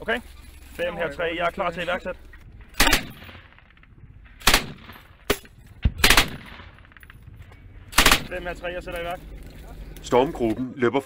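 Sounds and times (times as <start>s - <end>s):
gunshots: 2.6s - 8.6s.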